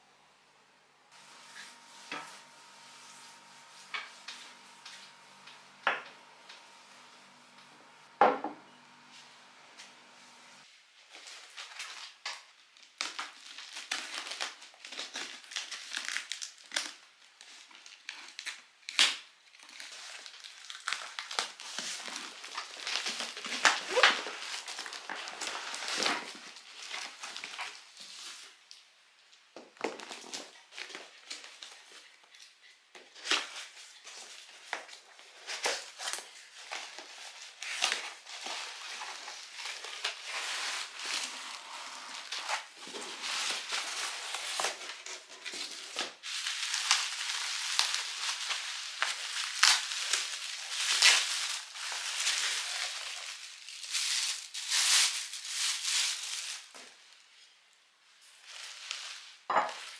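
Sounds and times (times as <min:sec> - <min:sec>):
bubble wrap and plastic crinkling: 0:01.1 - 0:59.9.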